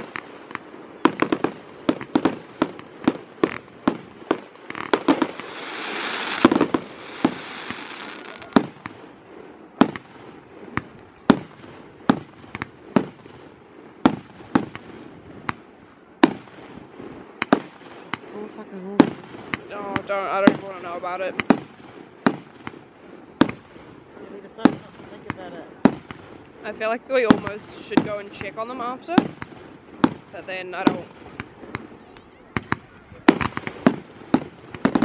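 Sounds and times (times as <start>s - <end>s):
fireworks bangs: 0.0s - 35.0s
fireworks hissing: 3.4s - 8.9s.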